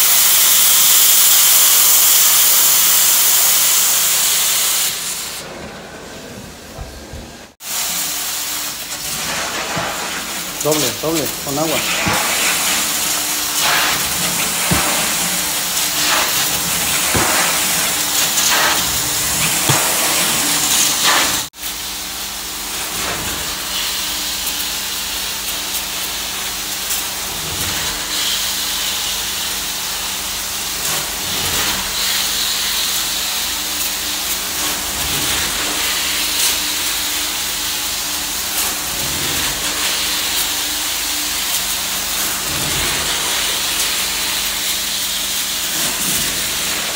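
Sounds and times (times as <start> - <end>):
hiss of spray and vacuum suction: 0.0 - 5.4, 7.6 - 21.5, 38.6 - 46.9.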